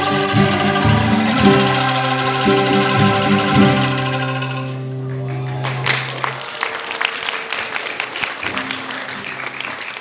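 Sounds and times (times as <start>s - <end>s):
audience applause: 5.0s - 10.0s.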